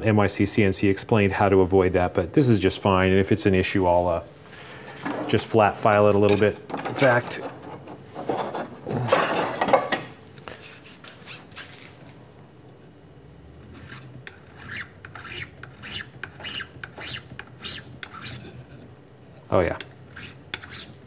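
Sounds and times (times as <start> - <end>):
file scraping aluminium: 13.7 - 18.9, 20.1 - 21.0.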